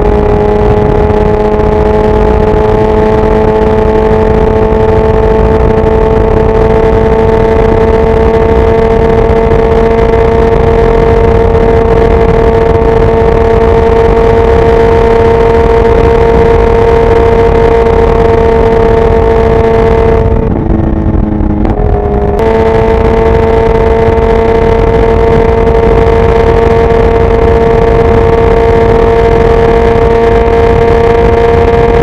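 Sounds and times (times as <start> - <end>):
motorcycle engine high-pitched drone: 0.0 - 32.0.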